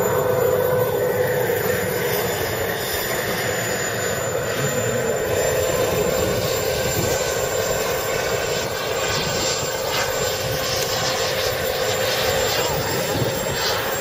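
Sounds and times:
gas turbine engine running: 0:00.0 - 0:14.0.

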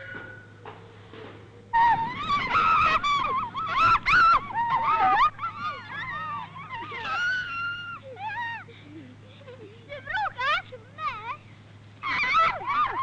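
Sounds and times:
low hum: 0:00.0 - 0:13.0
boys shouting and shrieking: 0:01.8 - 0:08.7, 0:12.0 - 0:13.0.

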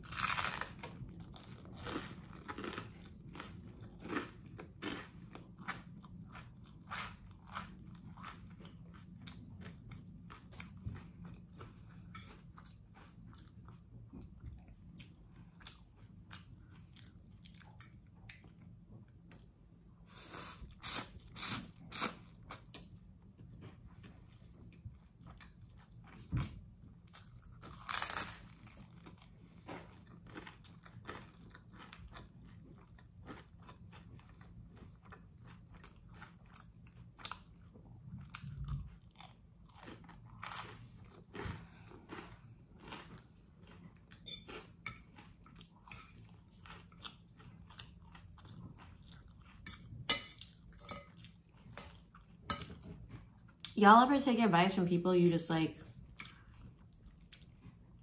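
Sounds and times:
bread crunching: 0:00.0 - 0:05.7, 0:27.1 - 0:33.8, 0:38.3 - 0:43.9
chewing with mouth clicks: 0:00.2 - 0:19.6, 0:20.4 - 0:26.5, 0:27.1 - 0:53.8, 0:56.1 - 0:58.0.

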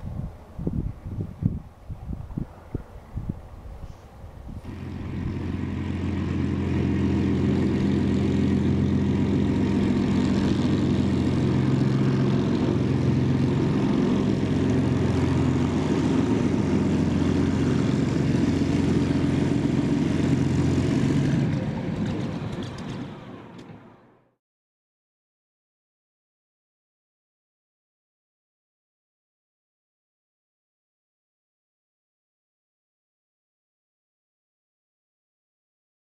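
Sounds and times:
propeller aircraft engine taxiing: 0:00.0 - 0:24.3.

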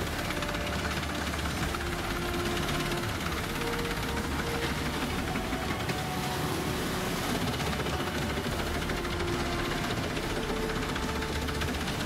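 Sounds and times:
wood chipper grinding logs: 0:00.0 - 0:12.0.

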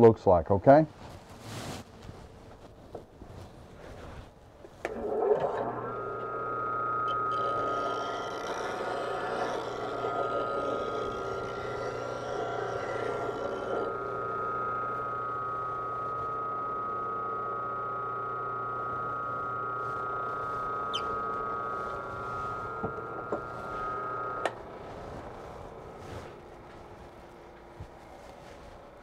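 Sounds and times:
bench grinder whining: 0:04.8 - 0:29.0
metal tool grinding on wheel: 0:04.9 - 0:15.2, 0:19.8 - 0:26.4.

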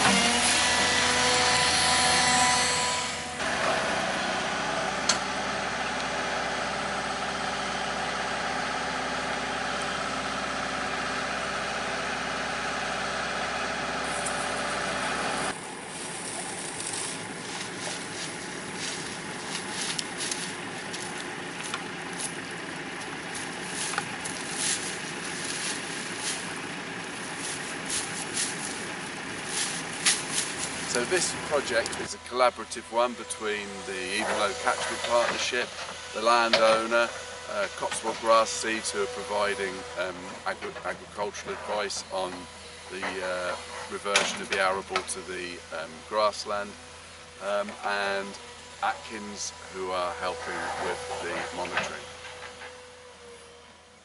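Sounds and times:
excavator diesel engine running: 0:00.0 - 0:54.0
brushwood crackling and clicking: 0:16.1 - 0:32.0.

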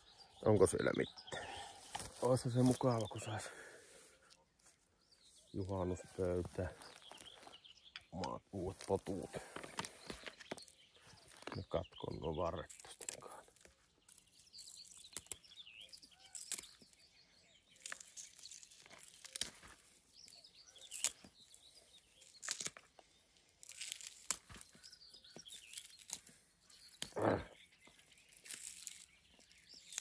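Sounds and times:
small birds chirping: 0:00.0 - 0:30.0
leaves rustling: 0:01.6 - 0:04.8, 0:12.6 - 0:30.0
plant stalks snapping: 0:12.6 - 0:17.0, 0:17.7 - 0:30.0.

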